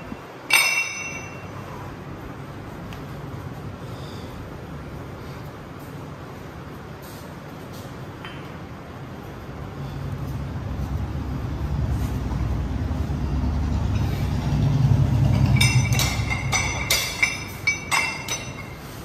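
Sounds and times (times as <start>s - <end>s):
metal weights clanking: 0.5s - 1.7s, 15.2s - 19.0s.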